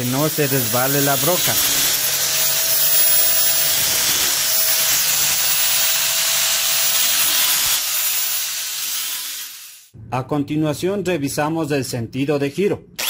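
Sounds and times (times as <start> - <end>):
angle grinder grinding metal: 0.0 - 9.9.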